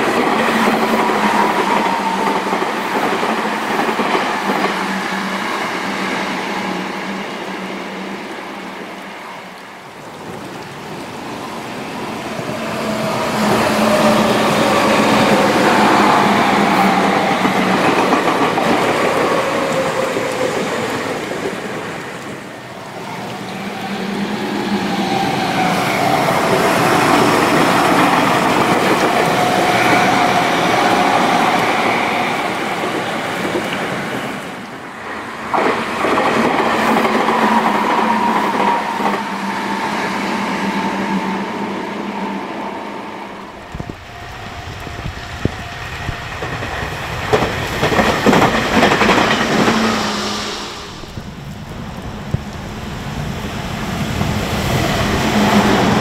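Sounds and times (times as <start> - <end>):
electric train running past: 0.0 - 56.0
wind buffeting microphone: 23.5 - 56.0.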